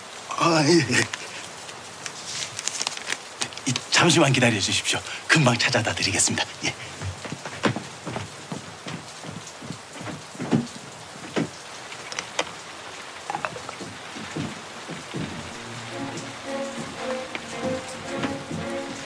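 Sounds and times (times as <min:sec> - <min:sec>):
rain-like hiss: 0:00.0 - 0:19.0
knocks and thuds: 0:07.0 - 0:11.6, 0:13.3 - 0:15.5
soft music with held notes: 0:15.3 - 0:19.0.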